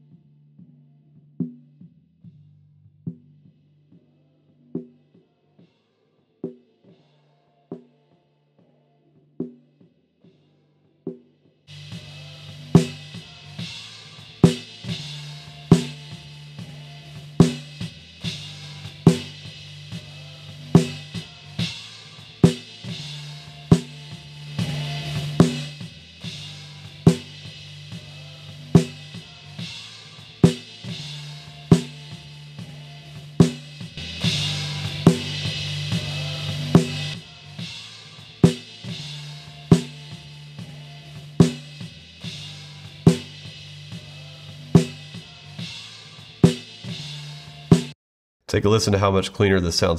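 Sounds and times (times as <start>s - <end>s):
cymbal wash: 11.7s - 45.6s
snare drum hits: 46.4s - 46.6s.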